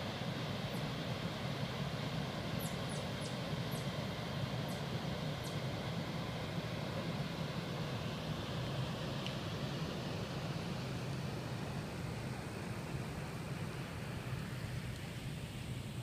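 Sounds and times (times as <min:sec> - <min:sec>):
water rushing through dam: 0:00.0 - 0:16.0
faint high ticks: 0:09.2 - 0:09.4.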